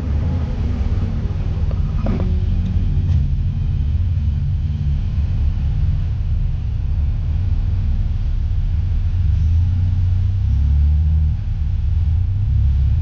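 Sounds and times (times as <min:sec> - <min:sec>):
engine low rumble: 0:00.0 - 0:13.0.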